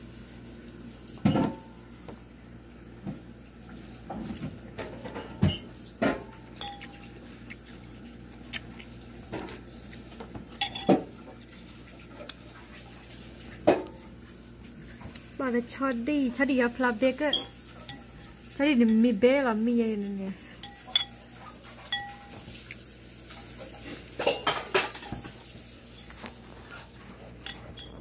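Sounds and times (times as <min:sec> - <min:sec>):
cutlery clinking on ceramic bowl: 0:05.1 - 0:07.1, 0:10.6 - 0:11.1, 0:17.3 - 0:18.2, 0:20.0 - 0:22.5, 0:27.4 - 0:28.0.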